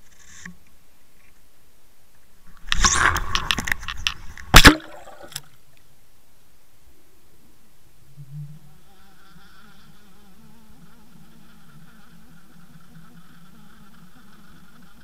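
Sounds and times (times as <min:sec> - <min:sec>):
camera slapping water: 0:02.6 - 0:05.5
sharp clicks: 0:02.6 - 0:05.5
water splashing and rushing: 0:02.6 - 0:05.5.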